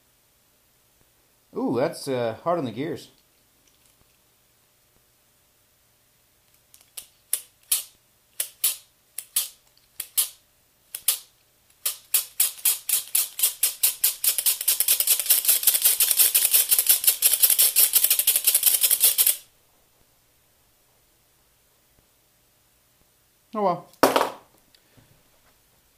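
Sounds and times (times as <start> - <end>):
plastic gears clicking: 6.7 - 19.4.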